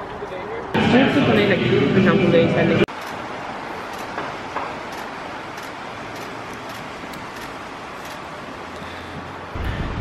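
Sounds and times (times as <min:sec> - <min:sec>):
traffic hum: 0:00.0 - 0:10.0.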